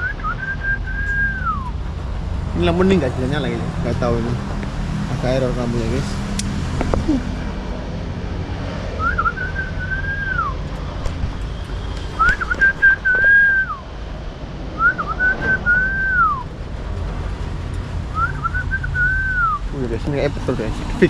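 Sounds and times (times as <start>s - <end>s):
whistled phrase: 0.0s - 1.7s, 9.0s - 10.6s, 12.2s - 13.8s, 14.8s - 16.5s, 18.2s - 19.7s.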